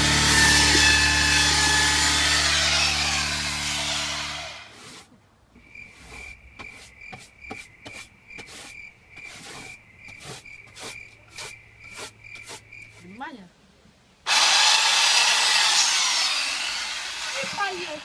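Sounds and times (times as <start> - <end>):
brush sweeping wooden tabletop: 4.7 - 5.1, 5.8 - 13.1.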